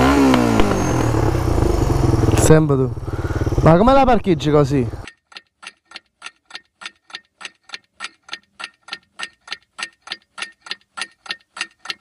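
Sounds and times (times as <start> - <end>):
clock ticking: 5.0 - 12.0.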